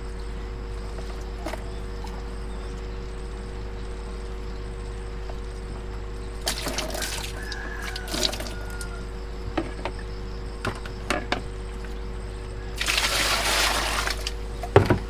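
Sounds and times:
water pouring and splashing: 6.4 - 8.8, 12.8 - 14.4
plastic knocks and clicks: 14.7 - 15.0.

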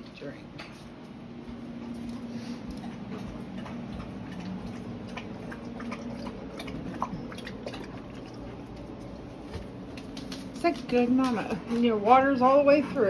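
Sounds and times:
dog lapping water from bowl: 1.9 - 13.0.

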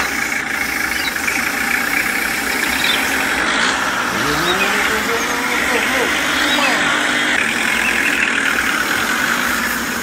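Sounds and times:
toy tractor engine running: 0.0 - 10.0
rising pitch tone: 2.7 - 8.2.

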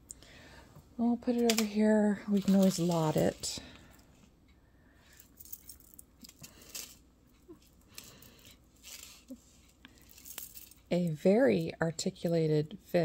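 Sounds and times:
metal pendant and chain clinking: 5.1 - 7.0, 8.0 - 11.1.

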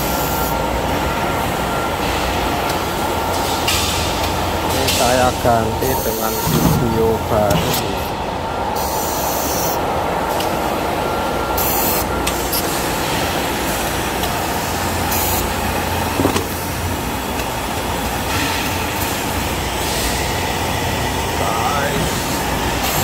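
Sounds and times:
workshop machinery rumble: 0.0 - 23.0.

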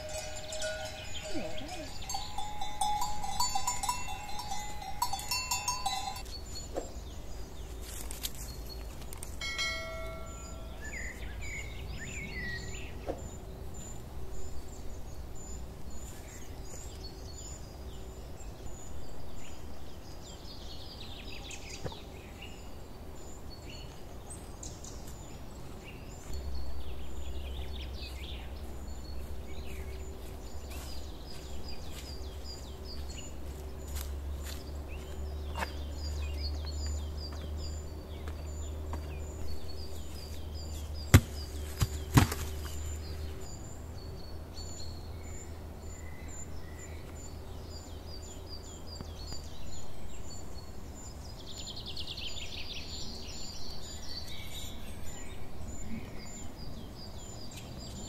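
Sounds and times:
bell-like ringing tones: 0.0 - 6.4, 9.4 - 11.2
birds chirping: 0.0 - 58.0.

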